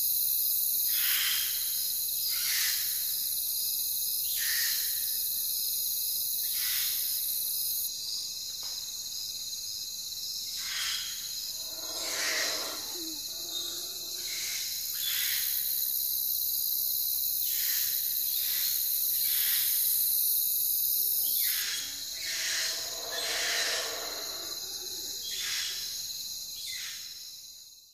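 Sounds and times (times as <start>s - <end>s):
low-pitched insect call: 0.0s - 27.7s
crickets trilling: 11.2s - 15.1s, 20.1s - 26.8s
short insect calls: 11.3s - 14.6s, 20.9s - 26.0s.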